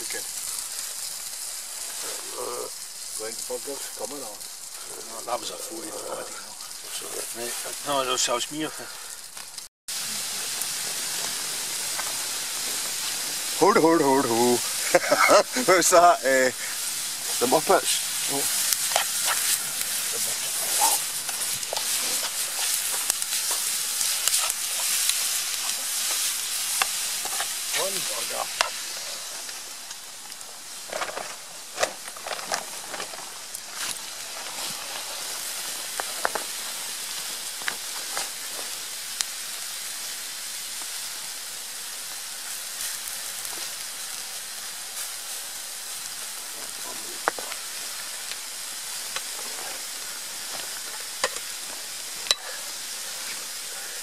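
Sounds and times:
vegetables sizzling in frying pan: 0.0s - 54.0s
sharp clicks and crackles: 9.3s - 9.7s, 14.6s - 39.3s, 46.0s - 49.8s.

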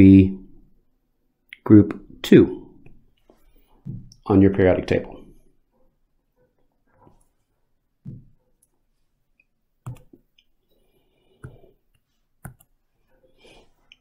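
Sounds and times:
computer clicks and taps: 9.8s - 10.3s, 11.4s - 12.8s.

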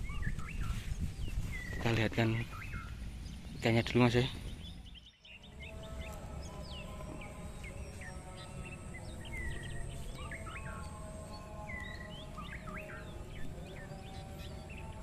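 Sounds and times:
birds chirping: 0.0s - 15.0s.

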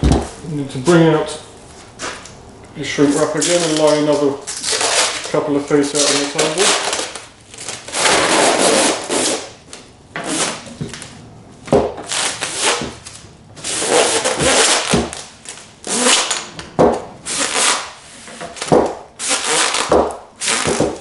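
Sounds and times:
plastic wrap crackling and rustling: 3.1s - 9.6s, 17.3s - 21.0s.

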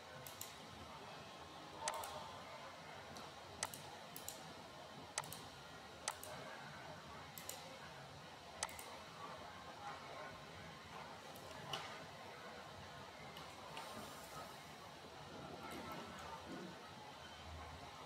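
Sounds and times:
computer mouse clicking: 1.8s - 2.2s, 3.6s - 4.4s, 5.2s - 5.4s, 6.0s - 6.4s, 7.4s - 7.6s, 8.6s - 8.9s.

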